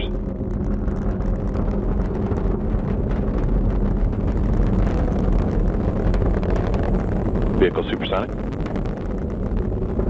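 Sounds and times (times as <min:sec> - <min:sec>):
rocket engines rumbling with crackling: 0:00.0 - 0:10.0.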